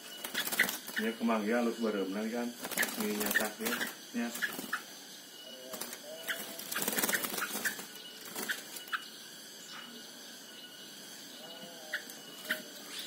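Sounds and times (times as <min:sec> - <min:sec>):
wings flapping against cage: 0:00.0 - 0:01.2, 0:02.5 - 0:04.8, 0:05.7 - 0:09.0
birds chirping: 0:00.0 - 0:13.0.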